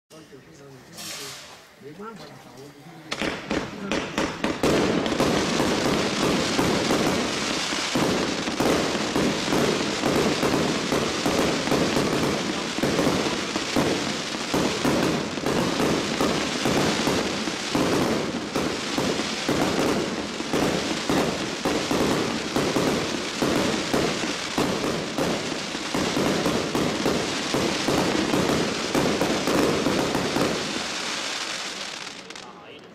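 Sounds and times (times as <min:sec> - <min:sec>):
fireworks crackling: 0:00.8 - 0:32.9
fireworks launch thumps: 0:03.1 - 0:07.2.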